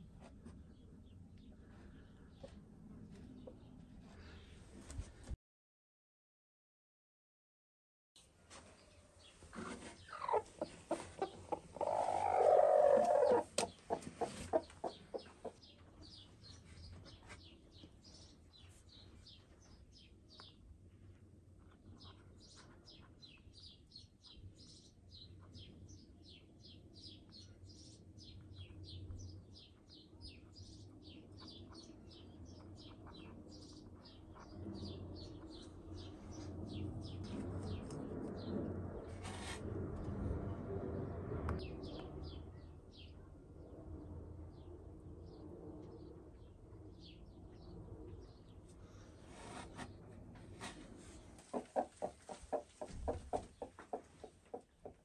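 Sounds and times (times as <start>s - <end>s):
hen clucking: 9.6s - 15.7s, 51.4s - 55.0s.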